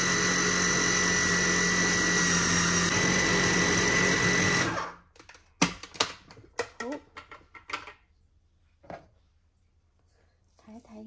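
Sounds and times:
food processor motor whining: 0:00.0 - 0:05.1.

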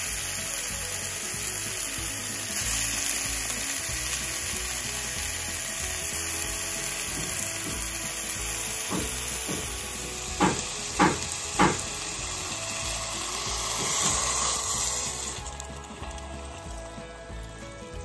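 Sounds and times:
water pouring into a hot pot: 0:00.0 - 0:16.9
fish sizzling in a pot: 0:00.0 - 0:18.0
sharp knocks: 0:08.9 - 0:09.8, 0:10.4 - 0:11.9.

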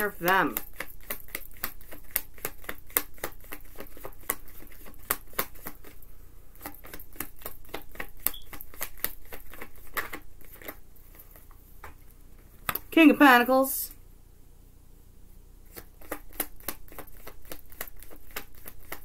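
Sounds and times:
cards being shuffled: 0:00.1 - 0:06.0, 0:06.6 - 0:11.6, 0:15.7 - 0:19.0.

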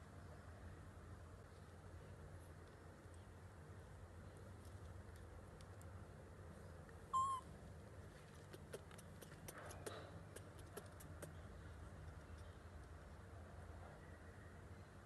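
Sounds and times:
baby monkey squeaking: 0:07.2 - 0:07.4.

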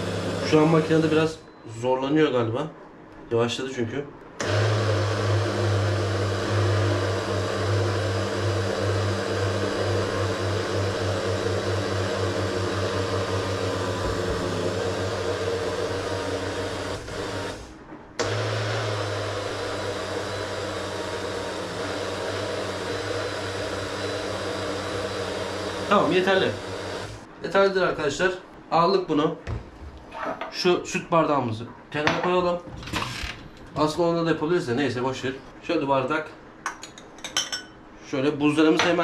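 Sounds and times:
blender motor labouring: 0:00.0 - 0:01.3, 0:04.4 - 0:27.3.

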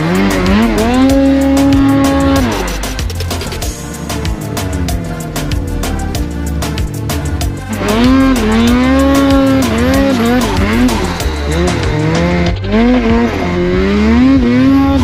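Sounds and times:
snowmobile engine revving: 0:00.0 - 0:15.0.

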